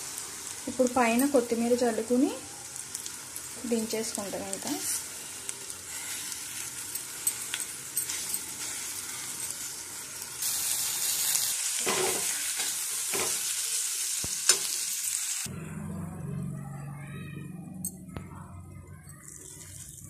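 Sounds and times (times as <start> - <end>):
food sizzling in a metal pan: 0.0 - 15.5, 19.2 - 20.0
metal spatula scraping: 11.8 - 13.4.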